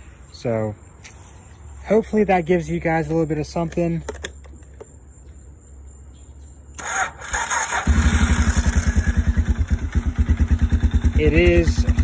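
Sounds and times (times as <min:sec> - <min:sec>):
engine starter cranking: 0:06.8 - 0:09.4
engine idling: 0:06.8 - 0:12.0.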